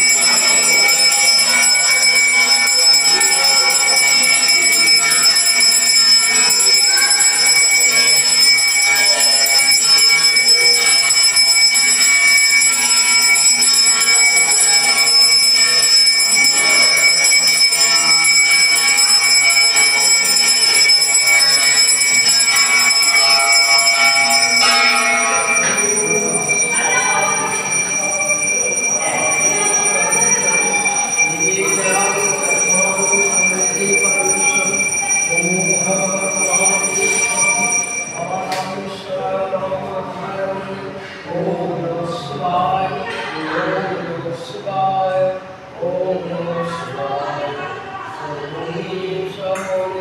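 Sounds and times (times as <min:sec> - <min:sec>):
hand bell ringing: 0:00.0 - 0:38.8.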